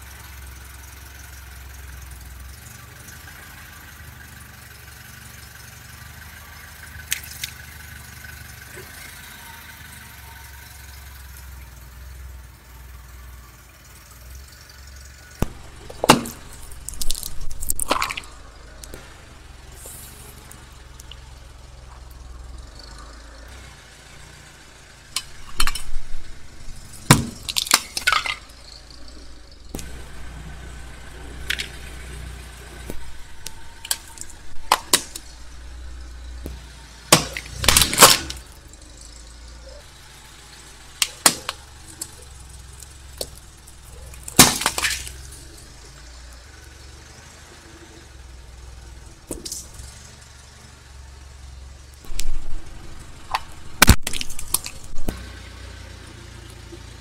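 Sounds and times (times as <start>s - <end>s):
car engine running: 0.0s - 57.0s
plastic cracking under car tyre: 15.4s - 19.0s, 26.8s - 28.6s, 32.8s - 35.3s, 36.4s - 38.5s, 42.8s - 45.6s, 52.0s - 55.2s.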